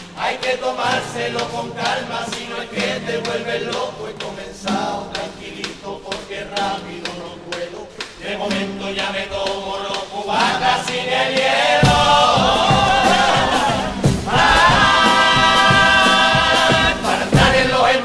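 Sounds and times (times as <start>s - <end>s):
guitars: 0.0s - 18.0s
men singing in chorus: 0.0s - 18.0s
bass drum and cymbal beat: 11.8s - 18.0s.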